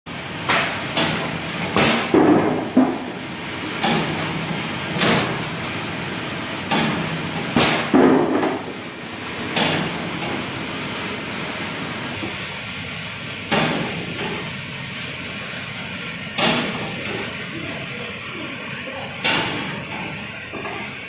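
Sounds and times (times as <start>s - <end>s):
machine humming: 0.1s - 21.0s
metal clanks: 19.0s - 21.0s.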